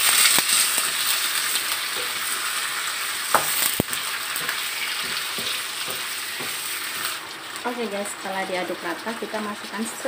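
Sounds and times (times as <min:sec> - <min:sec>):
food sizzling in a wok: 0:00.0 - 0:10.0
spatula knocking on wok: 0:03.3 - 0:06.7.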